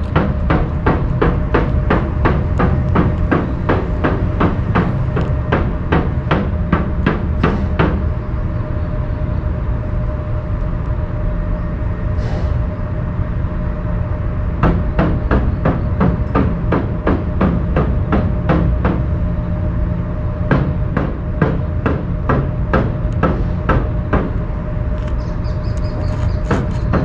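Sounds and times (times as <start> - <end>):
rhythmic hammer-like knocking: 0.0 - 8.1, 14.5 - 19.3, 20.4 - 24.5, 26.4 - 27.0
steady low rumble: 0.0 - 27.0.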